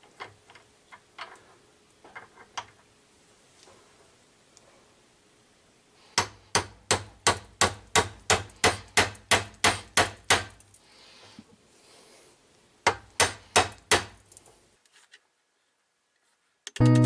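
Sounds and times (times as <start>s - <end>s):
hammer strikes on metal: 6.2s - 10.6s, 12.9s - 14.2s.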